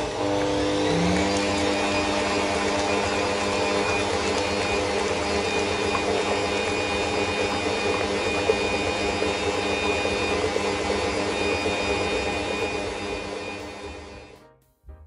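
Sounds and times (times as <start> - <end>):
stand mixer whirring: 0.0 - 14.4
whisk beating eggs in metal bowl: 0.0 - 14.4.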